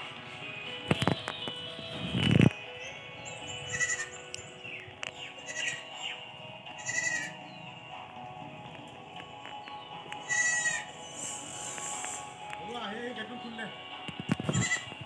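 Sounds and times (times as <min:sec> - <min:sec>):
background music: 0:00.0 - 0:15.0
goats bleating: 0:03.7 - 0:04.2, 0:05.4 - 0:05.9, 0:06.7 - 0:07.4, 0:10.2 - 0:11.0, 0:14.5 - 0:15.0.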